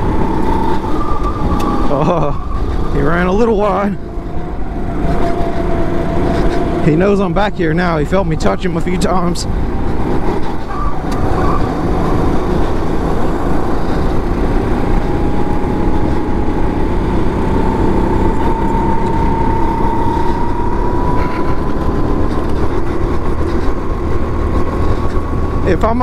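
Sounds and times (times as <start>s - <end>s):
racing kart engine drone: 0.0s - 26.0s
thin whine rising in pitch: 0.0s - 26.0s.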